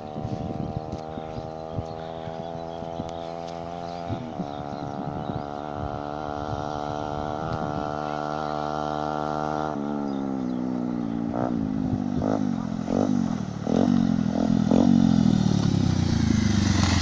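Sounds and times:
motorcycle engine approaching: 0.0 - 17.0.

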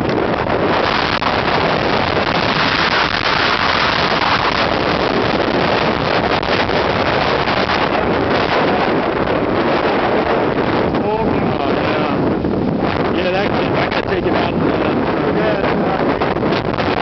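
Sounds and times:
heavy surf breaking on seawall: 0.0 - 17.0
wind buffeting microphone: 0.0 - 17.0.

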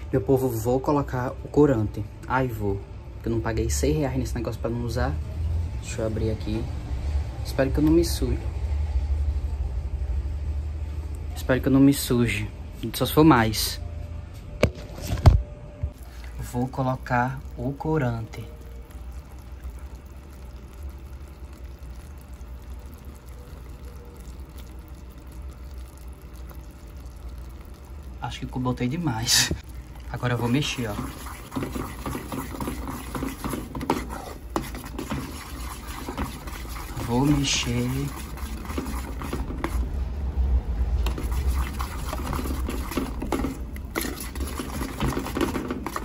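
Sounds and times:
low steady rumble: 1.2 - 11.4, 34.3 - 44.7
syrup boiling in a metal pot: 16.0 - 46.0
spoon scraping and tapping pot: 30.8 - 39.8, 42.0 - 46.0.

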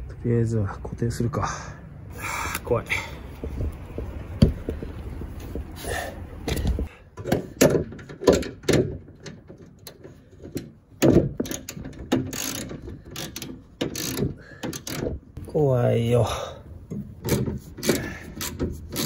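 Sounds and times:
metal clicks and clanks: 6.5 - 15.4, 16.9 - 19.0.

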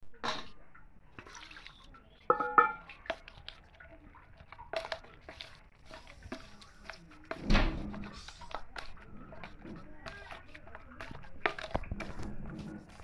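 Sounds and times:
wet squishing of mashed food: 1.1 - 13.0.

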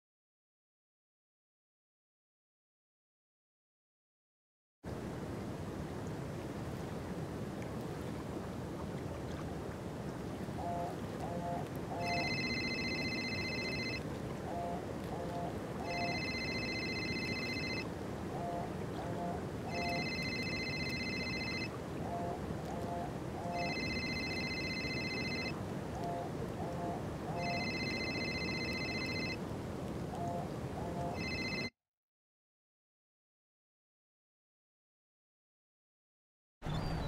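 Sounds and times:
low background noise: 4.9 - 31.7
mobile phone ringing: 10.6 - 29.4, 31.0 - 31.7.

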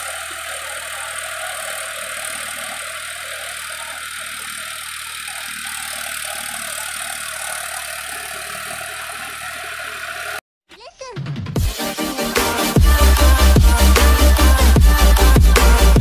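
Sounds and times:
tractor diesel engine under load: 0.0 - 10.4.

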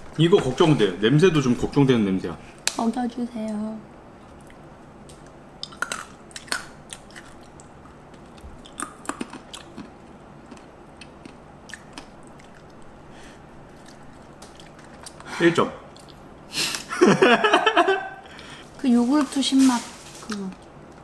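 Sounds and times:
crunching and chewing almond: 4.3 - 12.9, 13.7 - 15.3.

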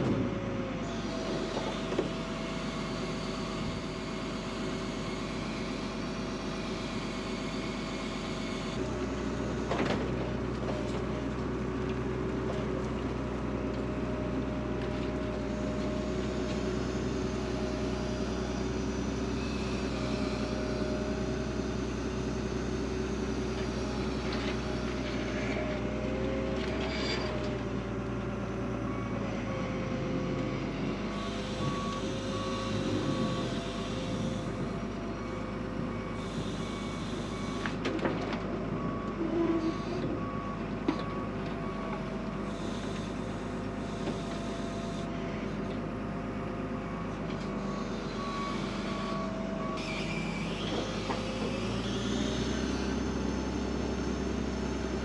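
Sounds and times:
loader diesel engine running: 0.0 - 55.0
reversing alarm beeping: 31.0 - 37.8, 38.7 - 45.1, 46.9 - 52.9.

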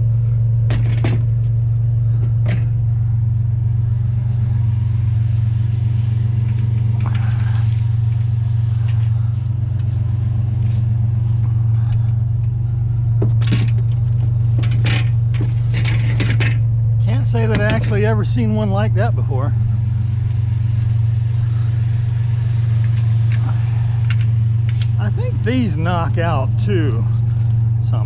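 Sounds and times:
pickup truck engine idling: 0.0 - 28.0
scrap metal clanking: 13.2 - 16.7.

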